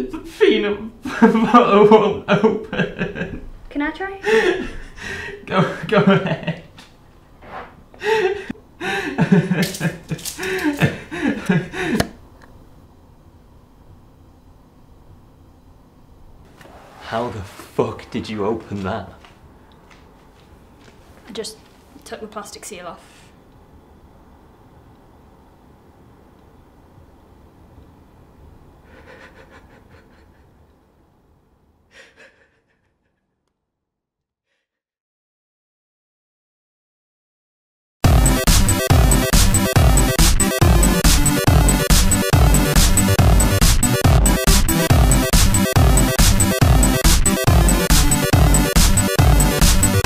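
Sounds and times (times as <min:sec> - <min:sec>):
man gasping: 0:04.3 - 0:05.4, 0:08.0 - 0:09.2, 0:10.4 - 0:12.1, 0:31.9 - 0:32.7.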